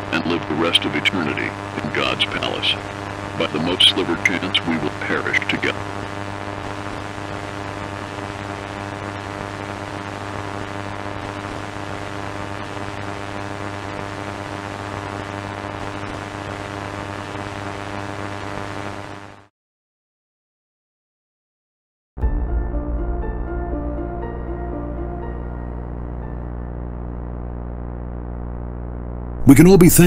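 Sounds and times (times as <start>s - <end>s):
broadcast static hiss: 0.0s - 19.5s, 24.3s - 30.0s
low buzzing hum: 22.2s - 30.0s.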